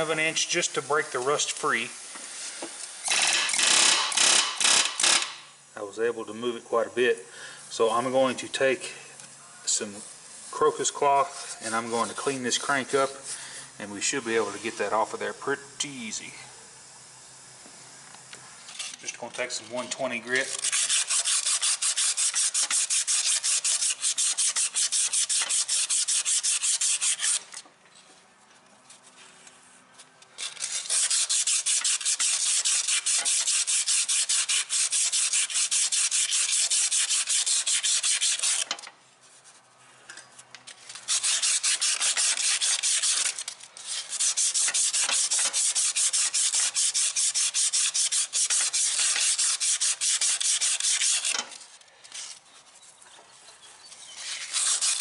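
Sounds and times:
sandpaper rubbing on metal: 18.8 - 27.6, 30.4 - 39.6, 40.9 - 52.4, 54.0 - 55.0.

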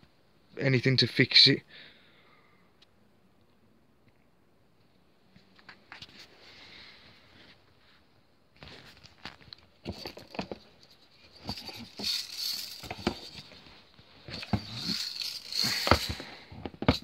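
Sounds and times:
scraping and rustling: 8.6 - 17.0
knocks and clicks of handling: 9.2 - 17.0.

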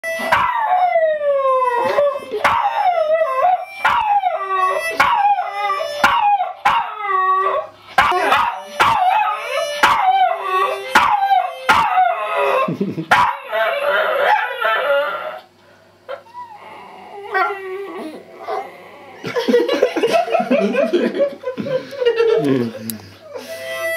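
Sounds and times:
harmonica held notes: 0.0 - 0.3, 1.4 - 6.1, 8.2 - 12.6, 23.3 - 23.9
dog howling and yipping: 0.2 - 15.5, 16.1 - 19.1.

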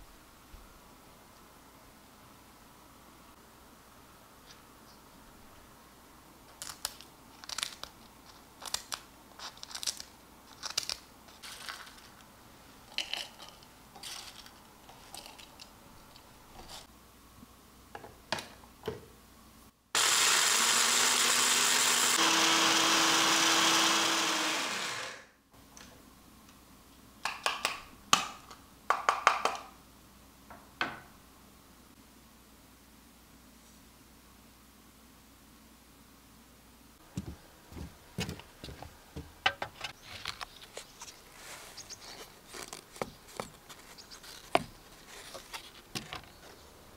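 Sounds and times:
dry peels crackling: 6.5 - 12.3, 40.0 - 46.7
electric grinder motor: 20.0 - 25.3.

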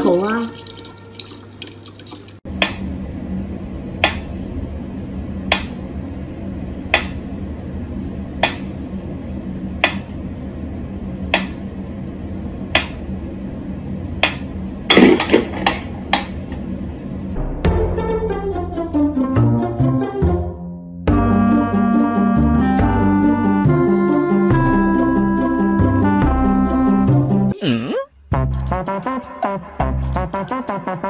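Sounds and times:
mechanical metronome ticking: 28.4 - 29.1.

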